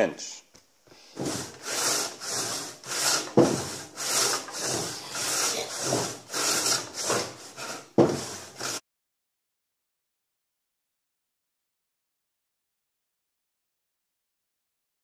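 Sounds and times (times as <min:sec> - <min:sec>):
hand saw ripping a log: 0:01.2 - 0:08.8.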